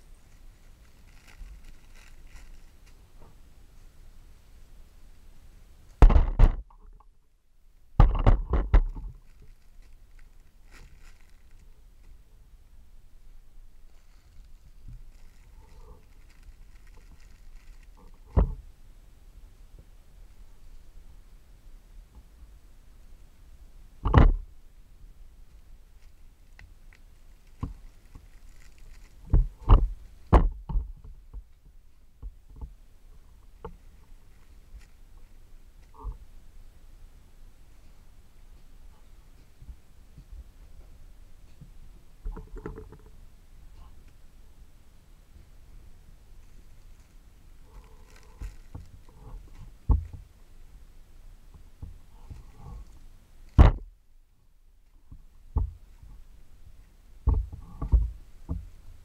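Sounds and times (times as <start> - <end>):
plastic wrap rustling: 0.0 - 3.0, 8.8 - 12.2, 13.9 - 18.4, 26.0 - 30.0, 46.4 - 50.2
plastic packaging crinkling: 0.2 - 3.0, 9.0 - 12.2, 13.9 - 18.4, 26.0 - 29.6, 47.8 - 49.6.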